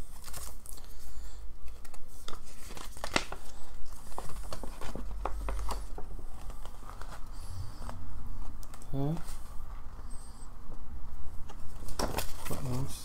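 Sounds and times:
sharp paper crackle: 0:00.0 - 0:08.0, 0:11.7 - 0:13.0
paper crinkling and rustling: 0:00.0 - 0:09.6, 0:11.4 - 0:13.0.

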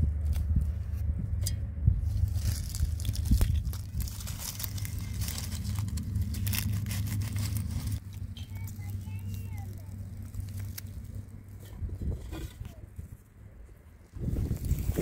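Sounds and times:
steady low rumble: 0:00.0 - 0:15.0
stems snapping and tearing: 0:00.1 - 0:00.8, 0:01.4 - 0:11.7
leaves rustling: 0:02.0 - 0:13.3, 0:14.1 - 0:15.0.

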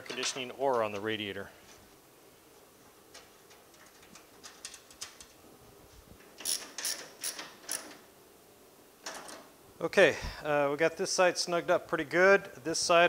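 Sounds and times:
ratchet wrench clicking: 0:06.4 - 0:08.0.

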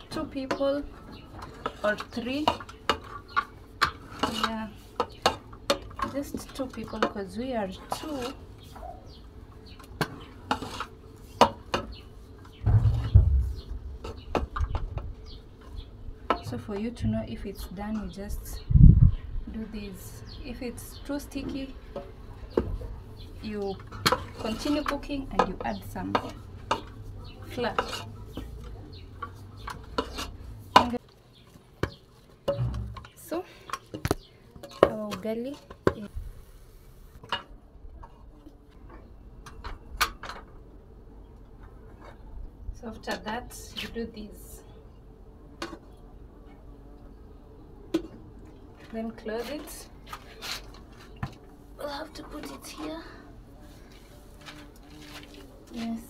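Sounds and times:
dull thuds of stirring porridge: 0:09.8 - 0:17.6.

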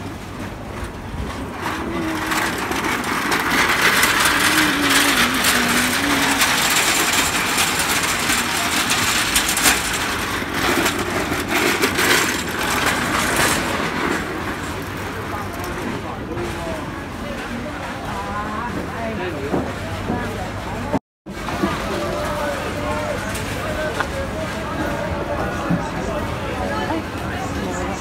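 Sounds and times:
metal trolley rattling on pavement: 0:00.7 - 0:18.4
hubbub of voices: 0:01.3 - 0:28.0.

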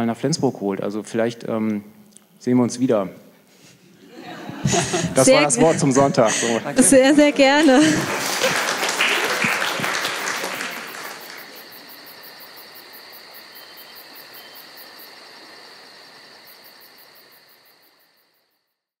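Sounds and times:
insects chirping: 0:04.2 - 0:19.0
applause: 0:06.7 - 0:12.1.

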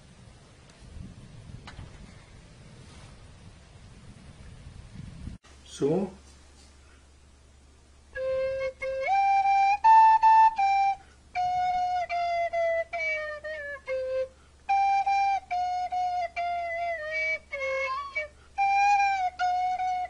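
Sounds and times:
recorder playing held notes: 0:08.2 - 0:20.0.

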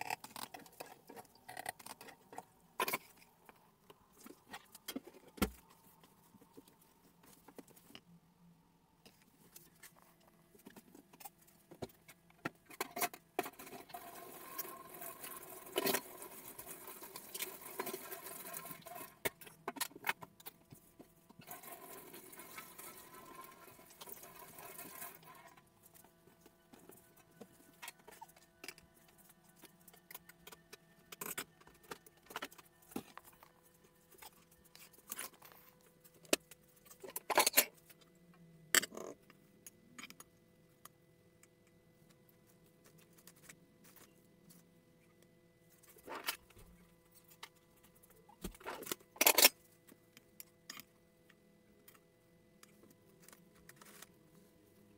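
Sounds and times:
utensils and dishes clinking: 0:48.6 - 0:49.6.

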